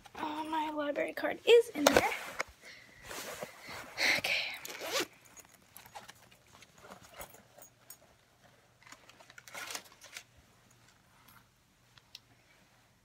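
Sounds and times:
rustling of purse handling: 4.6s - 11.6s.

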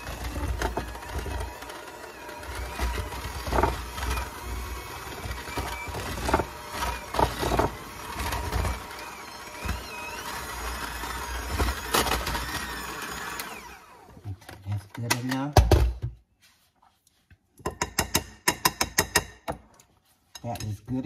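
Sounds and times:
electric hand mixer churning dough: 0.0s - 14.4s.

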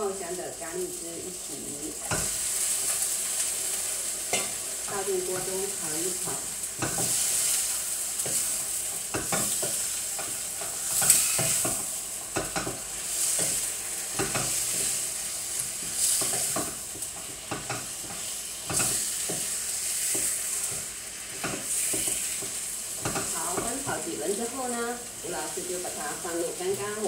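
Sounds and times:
chicken sizzling in oil: 0.0s - 27.0s
spatula scraping a pan: 6.2s - 24.1s.

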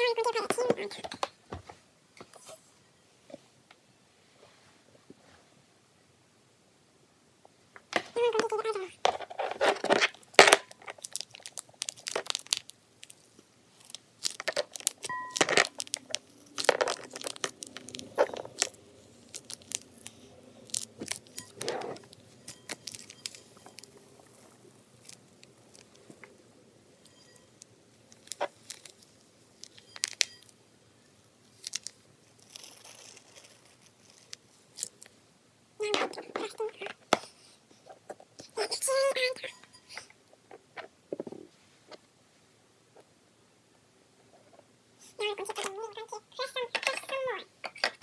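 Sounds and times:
plastic bag crinkling: 8.2s - 26.4s, 27.0s - 30.5s, 31.4s - 35.1s.

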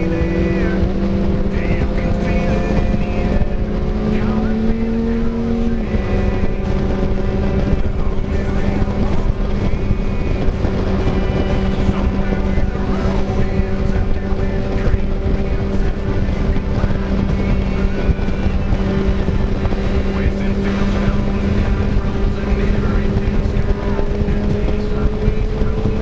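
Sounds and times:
motorcycle engine cruising: 0.0s - 26.0s
road noise: 0.0s - 26.0s
wind noise: 0.0s - 26.0s.

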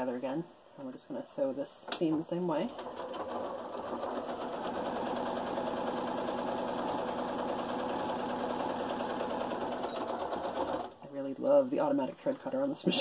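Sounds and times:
sewing machine stitching: 2.6s - 11.0s.

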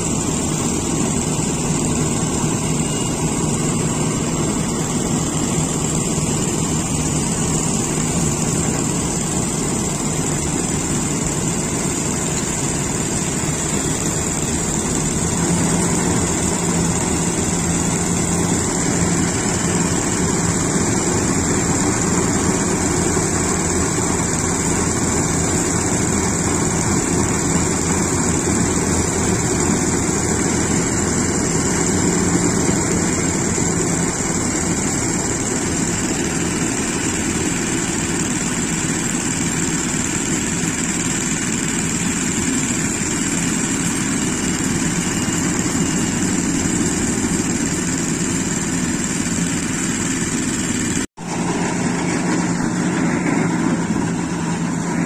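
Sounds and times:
engine drone: 0.0s - 55.0s
steady high whine: 0.0s - 55.0s.

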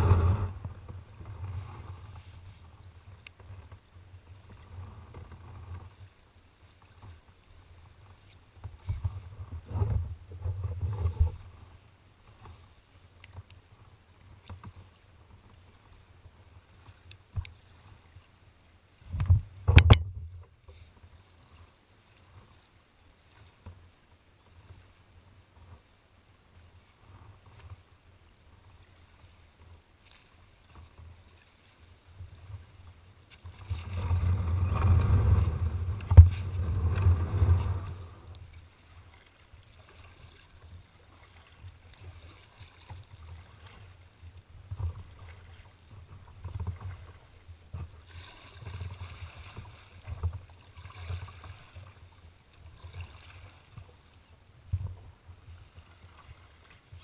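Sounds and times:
kayak hull scraping gravel: 0.0s - 2.7s, 33.3s - 39.1s
water and paddle splashes: 0.0s - 57.0s.

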